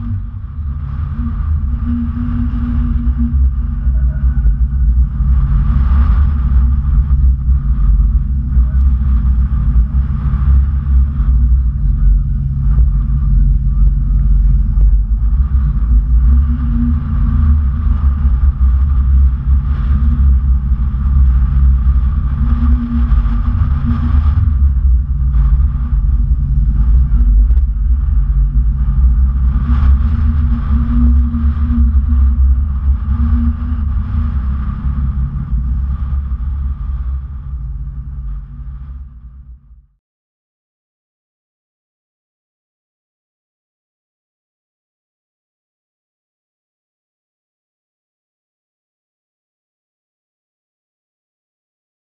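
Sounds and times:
boat engine rumbling: 0.0s - 39.7s.

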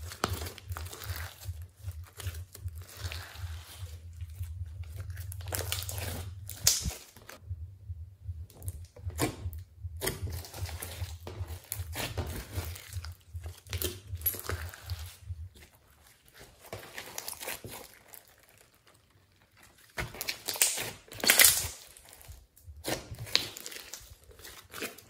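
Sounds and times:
slime squeezed with wet crackles: 13.6s - 25.0s.

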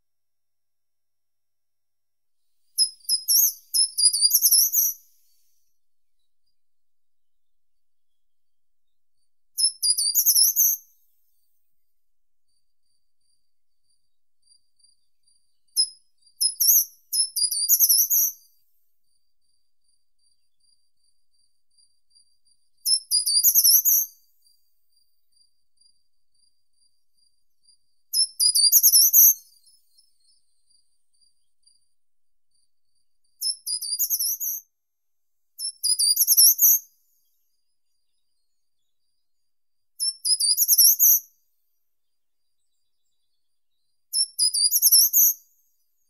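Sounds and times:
bird singing high phrases: 2.8s - 5.6s, 9.6s - 10.8s, 15.8s - 18.5s, 28.1s - 30.5s, 33.4s - 34.6s, 35.6s - 36.8s, 40.0s - 41.2s, 44.1s - 45.4s.

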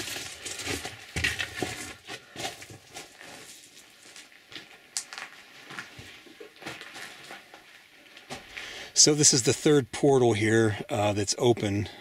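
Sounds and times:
footsteps on loose rock: 0.0s - 8.6s.

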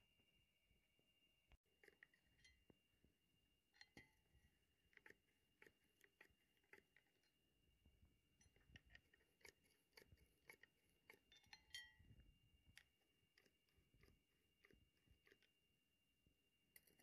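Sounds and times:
faint high whine: 0.0s - 1.6s
irregular clicks: 4.8s - 7.4s, 8.4s - 11.8s, 16.7s - 17.0s.

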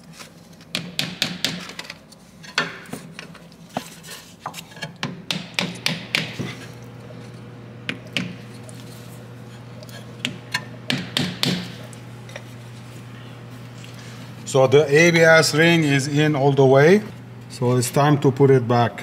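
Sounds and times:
steady low hum: 2.0s - 19.0s
hammer tapping wooden block: 10.9s - 11.7s.

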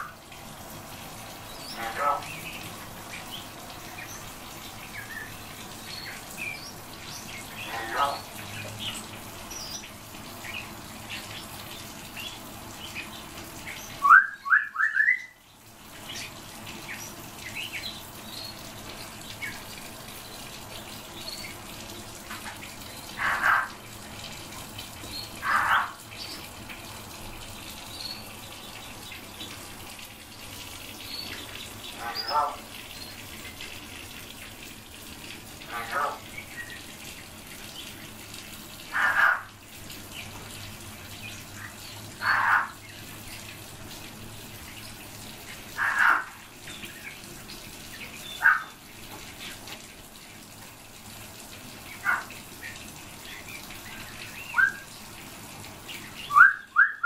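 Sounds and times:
songbirds chirping: 30.3s - 33.6s.

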